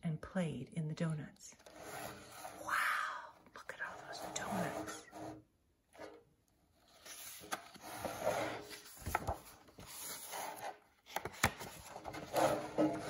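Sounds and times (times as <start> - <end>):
book pages turning: 6.8 - 13.0.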